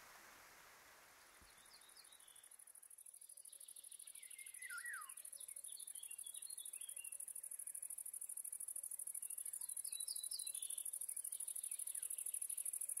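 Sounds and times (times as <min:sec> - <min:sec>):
bird chirping: 0:01.2 - 0:08.0, 0:09.0 - 0:13.0
insect stridulating: 0:01.5 - 0:13.0
falling bird whistle: 0:04.4 - 0:05.2.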